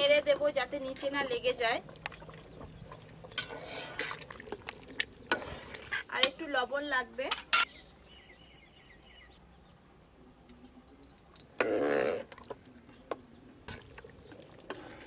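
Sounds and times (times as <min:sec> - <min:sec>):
spatula scraping a pot: 0:03.2 - 0:04.6, 0:05.3 - 0:06.3, 0:14.7 - 0:15.0.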